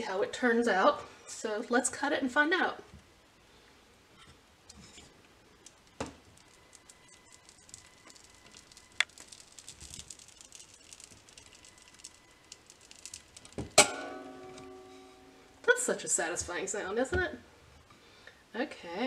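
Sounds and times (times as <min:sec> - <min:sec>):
wires slicing soap crackling: 0:04.7 - 0:14.7.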